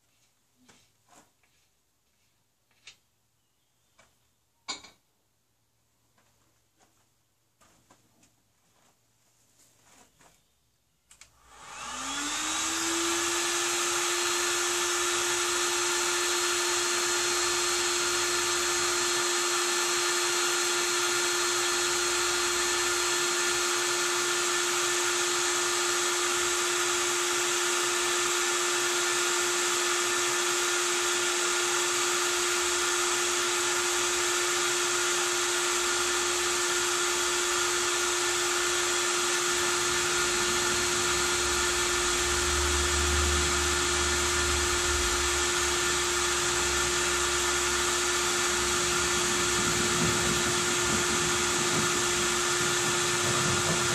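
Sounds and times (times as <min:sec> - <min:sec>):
cordless power tool motor whining: 0:11.4 - 0:53.9.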